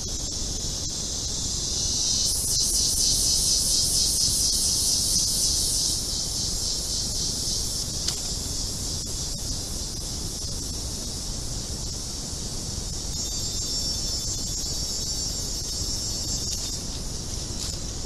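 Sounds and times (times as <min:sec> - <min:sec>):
insects buzzing in chorus: 0:00.0 - 0:18.0.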